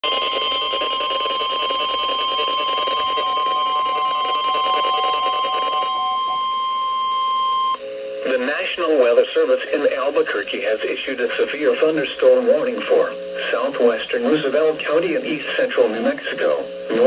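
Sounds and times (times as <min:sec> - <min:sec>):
high alarm tone from small speaker: 0:00.0 - 0:07.8.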